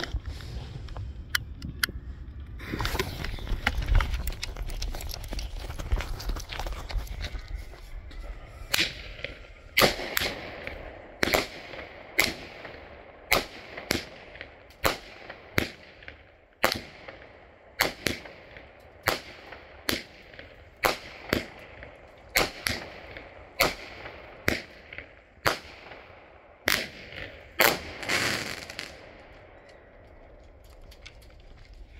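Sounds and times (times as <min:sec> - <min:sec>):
fireworks bangs: 0:08.6 - 0:15.0, 0:26.6 - 0:29.3
fireworks crackle: 0:26.7 - 0:29.4.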